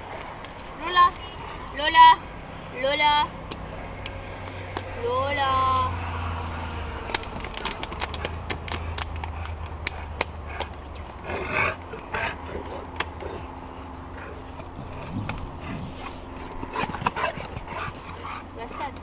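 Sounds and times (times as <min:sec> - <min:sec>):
dog lapping water: 0:07.6 - 0:19.0.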